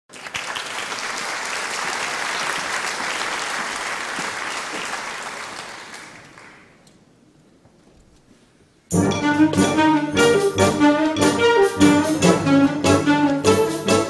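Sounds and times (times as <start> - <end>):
audience applauding: 0.1 - 6.8.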